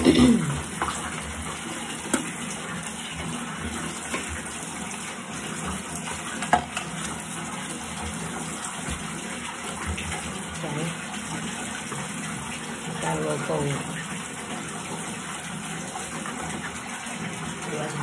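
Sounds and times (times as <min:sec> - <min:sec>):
tap running: 0:00.0 - 0:12.7.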